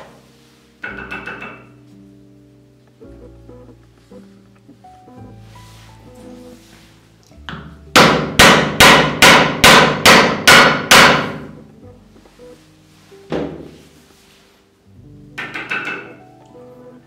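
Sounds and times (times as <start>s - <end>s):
hammer striking metal rammer: 7.9s - 11.5s.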